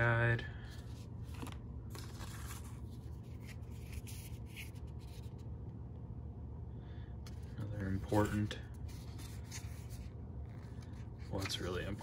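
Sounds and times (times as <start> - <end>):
faint low hum: 0.0 - 12.0
paper rustling and sliding: 0.7 - 5.4, 7.3 - 12.0.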